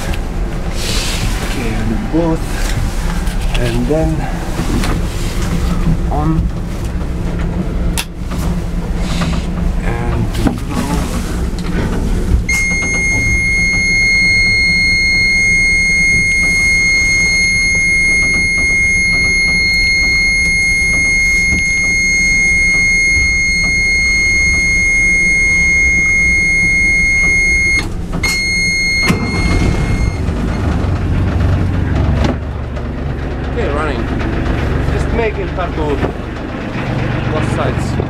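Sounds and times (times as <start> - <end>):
low rumble: 0.0 - 38.0
high-pitched warning buzzer: 12.5 - 30.2.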